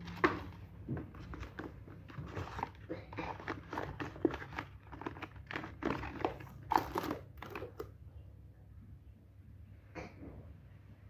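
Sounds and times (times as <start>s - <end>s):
cardboard packaging rustling: 0.0s - 7.9s.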